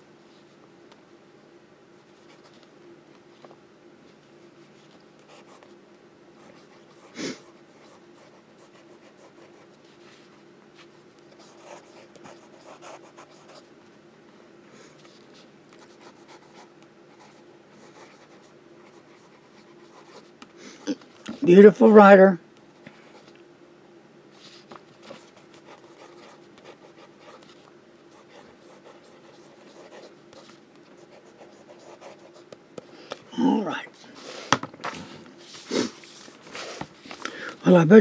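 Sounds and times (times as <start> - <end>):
faint hum: 0.0 - 38.0
pen nib scratching paper: 25.1 - 32.6.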